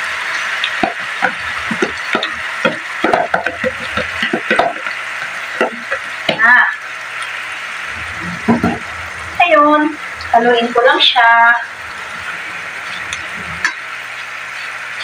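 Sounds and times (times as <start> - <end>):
frying pan sizzle: 0.0 - 15.0
spatula scraping and tapping: 0.6 - 6.4.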